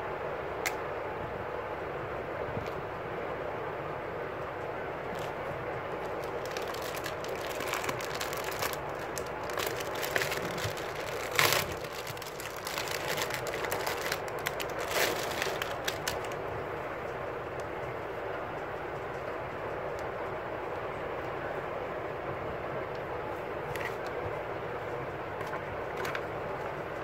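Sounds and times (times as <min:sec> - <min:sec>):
steady background noise: 0:00.0 - 0:27.0
plastic bag crinkling: 0:05.1 - 0:05.4, 0:06.0 - 0:16.4.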